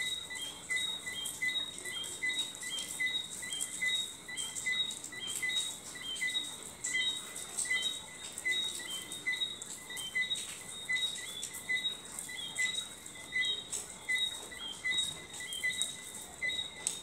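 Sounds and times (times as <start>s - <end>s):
light crackling clicks: 13.4s - 17.0s.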